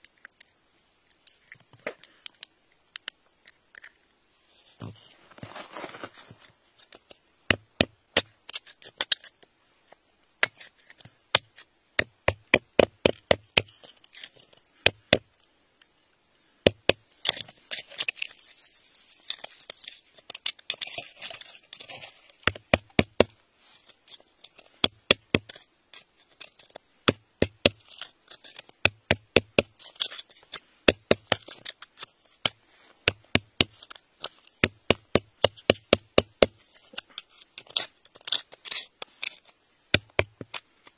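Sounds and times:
metal pick tapping stone: 7.0 - 9.3, 10.4 - 15.4, 16.6 - 18.3, 19.4 - 23.4, 24.1 - 40.9.

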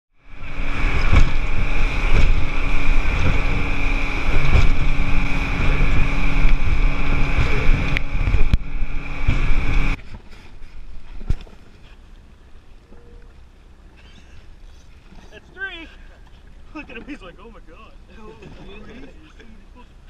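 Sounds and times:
motorboat engine drone: 0.1 - 20.0
wind buffeting microphone: 0.2 - 12.4
sharp knocks: 1.0 - 3.7.

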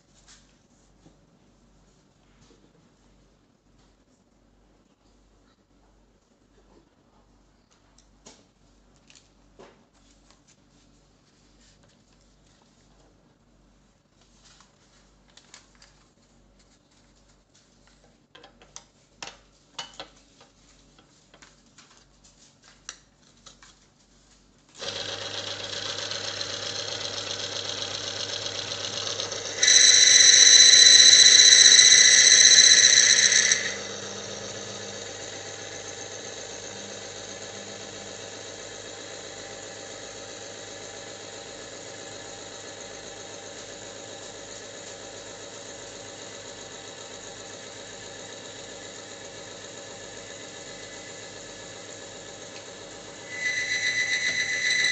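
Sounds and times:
electric motor humming: 24.8 - 54.9
metal on metal squeal: 29.0 - 35.0, 53.2 - 54.9.

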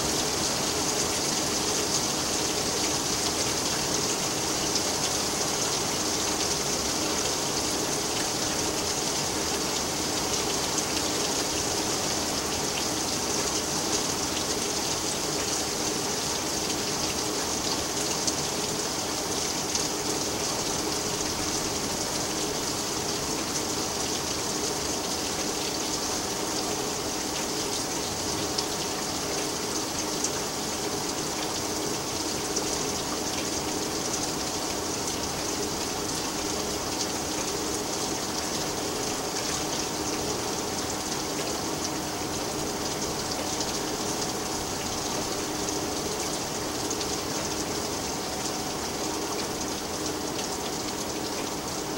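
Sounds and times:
hard rain falling: 0.0 - 51.9.

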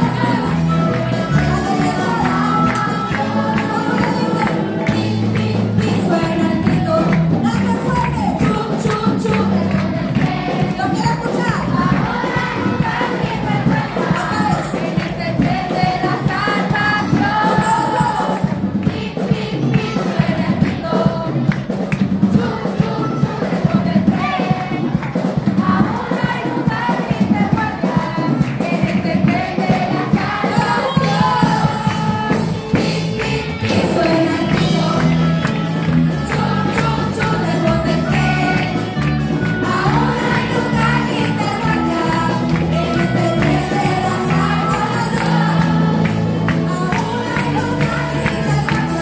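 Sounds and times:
children singing along: 0.0 - 6.9, 8.4 - 21.6, 22.2 - 49.0
upbeat children's song: 0.0 - 49.0
children clapping: 0.8 - 10.8, 33.2 - 49.0.

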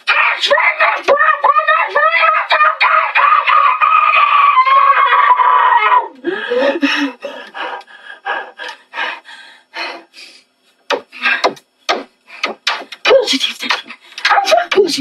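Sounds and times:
boy screaming: 0.0 - 6.2.

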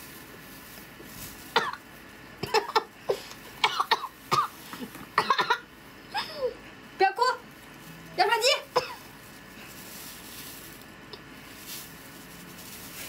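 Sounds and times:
woman coughing: 1.6 - 1.8, 2.4 - 6.5, 8.7 - 9.1.

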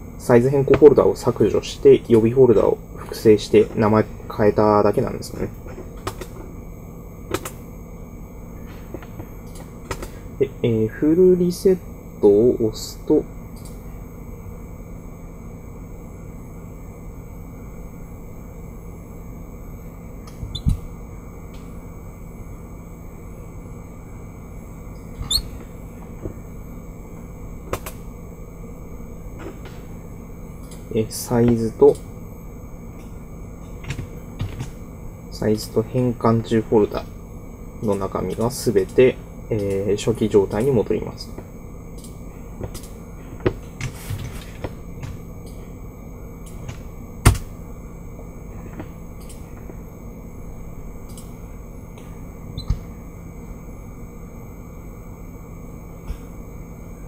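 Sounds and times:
faint hum: 0.0 - 57.0
short squeaky chirp: 25.2 - 25.5
computer mouse clicks: 51.1 - 51.3.

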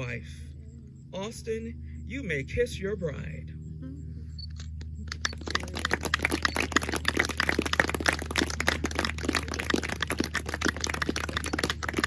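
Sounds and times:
crowd applauding: 5.1 - 12.0.

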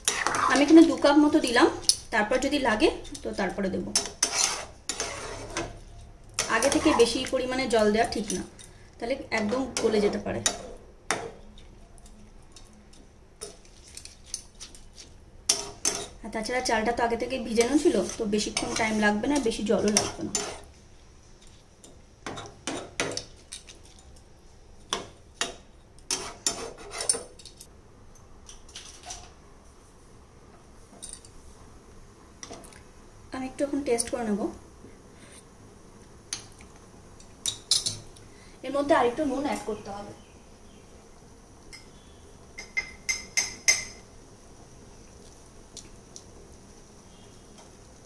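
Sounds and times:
metal spoon clinking on pot: 42.6 - 44.0.

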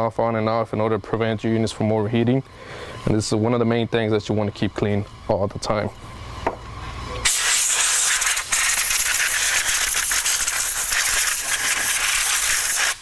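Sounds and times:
compressed air spraying hiss: 7.2 - 13.0.

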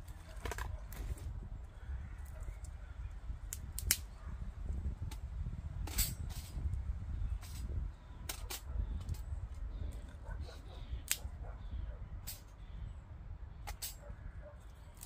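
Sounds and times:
dry twigs snapping: 3.4 - 4.1, 11.0 - 11.3.

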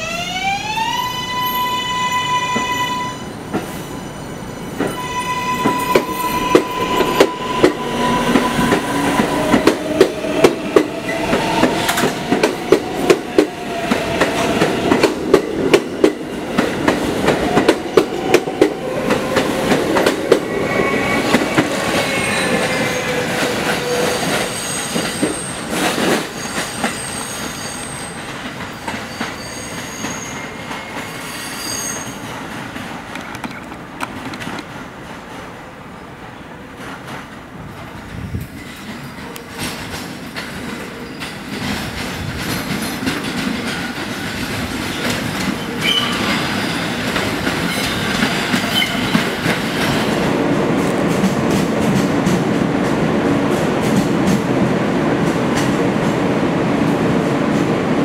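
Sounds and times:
high-pitched wheel squeals: 0.6 - 9.6, 20.4 - 25.7, 26.3 - 32.2
wheels clicking over rail joints: 32.3 - 35.5.

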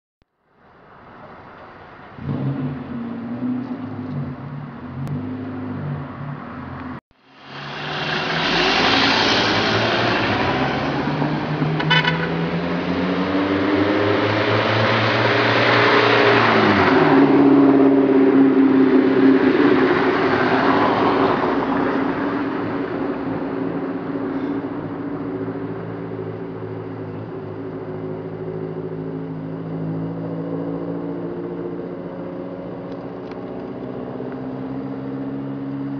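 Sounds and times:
vehicle passing by: 2.1 - 24.7.

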